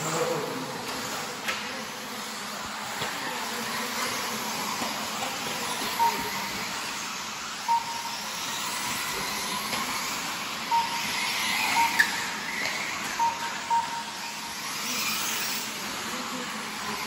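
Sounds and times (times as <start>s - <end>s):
rc car motors and tyres hissing: 0.0s - 13.2s, 14.3s - 17.0s
short beeps: 5.9s - 6.6s, 7.6s - 9.6s, 10.7s - 15.0s.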